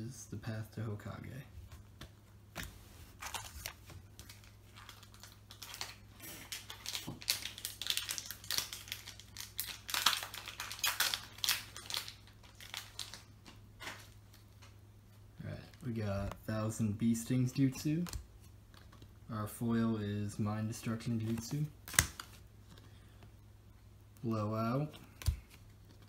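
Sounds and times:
foil wrapper tearing and crinkling: 0:03.2 - 0:13.3.

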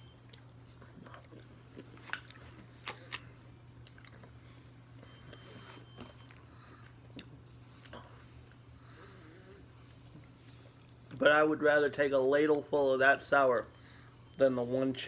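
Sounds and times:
person chewing: 0:00.2 - 0:04.3.

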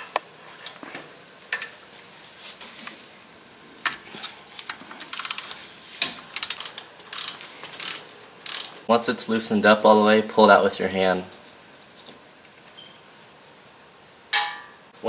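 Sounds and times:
ratchet wrench clicking: 0:05.1 - 0:05.6, 0:06.3 - 0:08.8.

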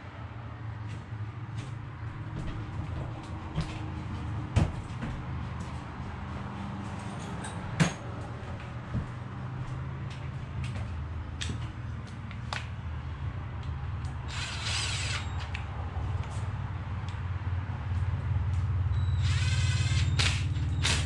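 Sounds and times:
cordless drill driving bolt: 0:14.0 - 0:15.7, 0:19.2 - 0:21.0.

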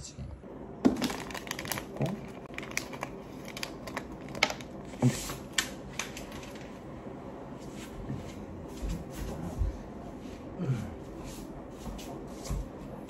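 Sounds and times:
wrappers crinkling: 0:00.9 - 0:06.7.

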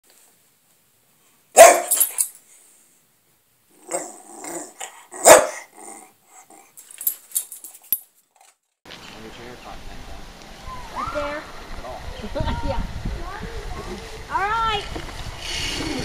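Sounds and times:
dog barking: 0:01.6 - 0:02.1, 0:03.9 - 0:05.7.

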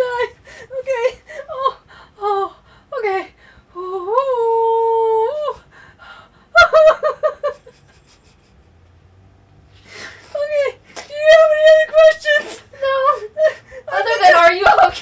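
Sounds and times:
woman whimpering and moaning: 0:00.0 - 0:06.2, 0:10.1 - 0:14.9
woman laughing: 0:06.6 - 0:08.6, 0:10.2 - 0:15.0.

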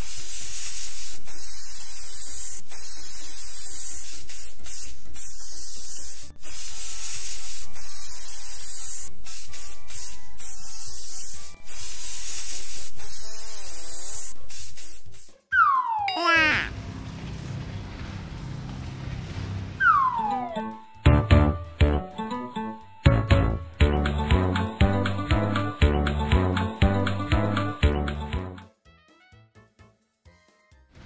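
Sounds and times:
spray can hissing: 0:00.0 - 0:15.4
falling whistle-like glide: 0:19.8 - 0:20.7.

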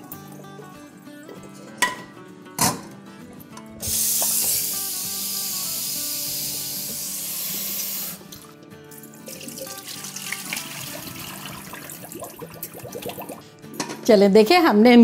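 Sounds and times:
tap water running into saucepan: 0:03.8 - 0:05.0, 0:06.2 - 0:13.4
water poured into metal sink: 0:09.0 - 0:13.4.

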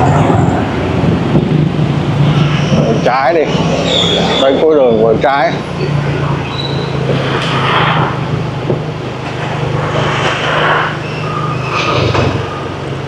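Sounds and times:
passing vehicles rushing: 0:00.0 - 0:13.0
vehicle engine running: 0:00.0 - 0:13.0.

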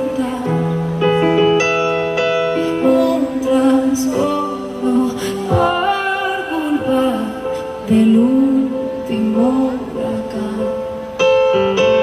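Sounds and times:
woman singing: 0:00.0 - 0:01.2, 0:02.6 - 0:11.4
live pop band: 0:00.0 - 0:12.0.

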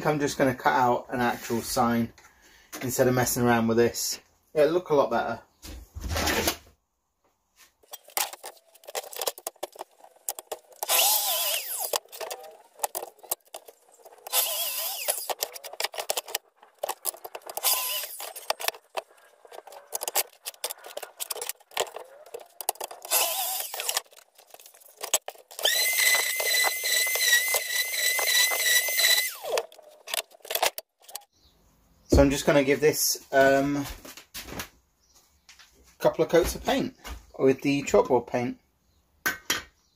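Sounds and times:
plunge saw cutting plywood: 0:10.3 - 0:30.8
orbital sander whine: 0:10.8 - 0:12.0, 0:14.3 - 0:15.4, 0:25.6 - 0:29.6.

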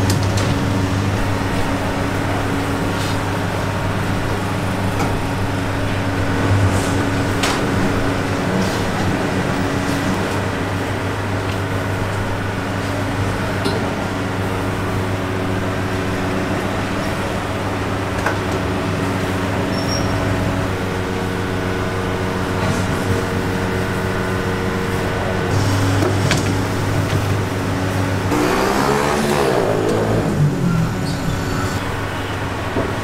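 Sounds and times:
low motor hum: 0:00.0 - 0:32.8
road traffic: 0:00.0 - 0:33.0
vehicle passing by: 0:28.3 - 0:31.8.

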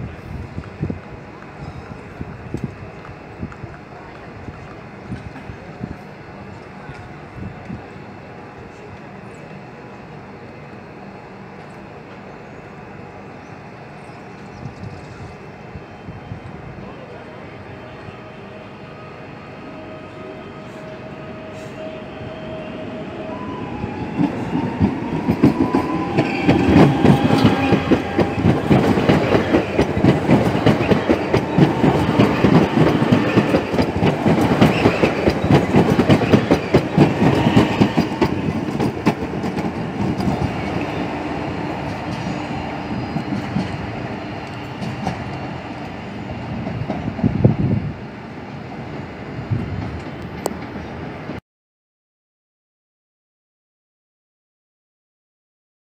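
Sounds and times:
train wheels clattering over rail joints: 0:24.2 - 0:41.0.

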